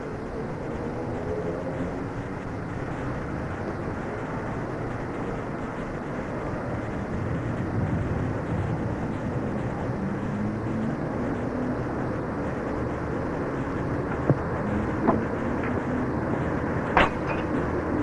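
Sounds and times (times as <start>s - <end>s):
steady low rumbling: 0.0s - 18.0s.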